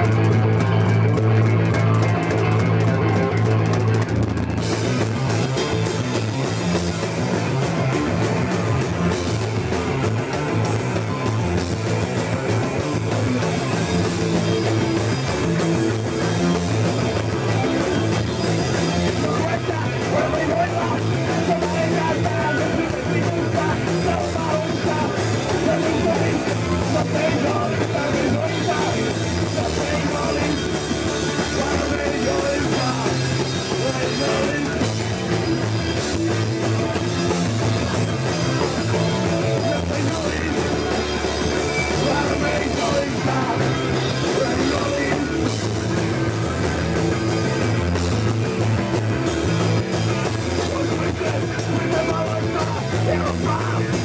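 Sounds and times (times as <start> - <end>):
punk band playing live: 0.0 - 54.0
person singing: 18.8 - 34.9, 41.8 - 45.5, 50.4 - 54.0.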